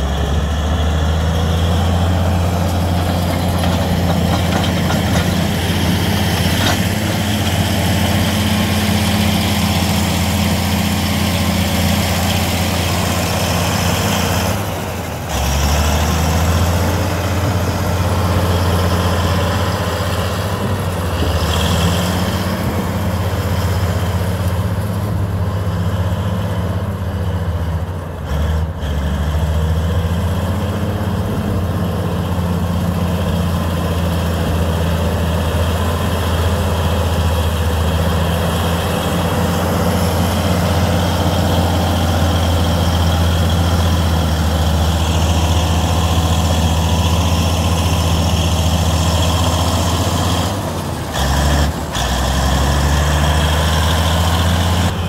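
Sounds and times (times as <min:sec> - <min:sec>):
heavy diesel engine running: 0:00.0 - 0:55.0.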